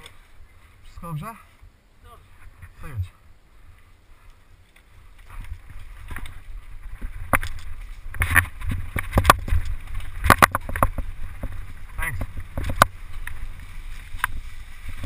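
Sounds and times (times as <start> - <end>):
wind rumble on microphone: 5.0 - 15.0
mountain bike clattering over bumps: 5.2 - 15.0.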